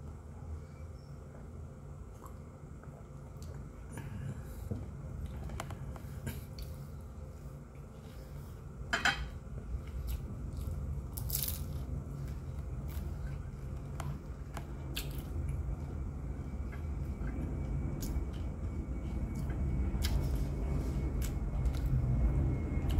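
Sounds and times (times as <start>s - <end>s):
low steady hum: 0.0s - 22.9s
crunching and chewing food: 7.7s - 22.9s.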